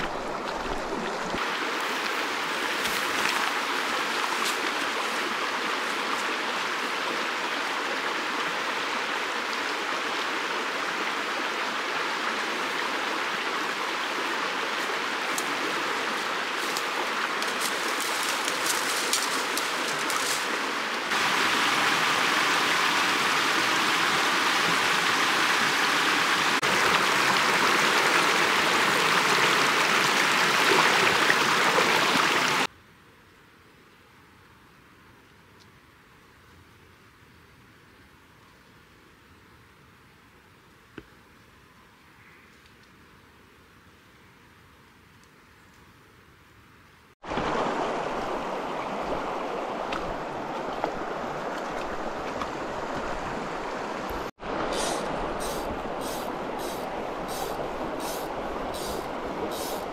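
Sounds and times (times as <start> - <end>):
stream running over stones: 0.0 - 32.7, 47.2 - 59.9.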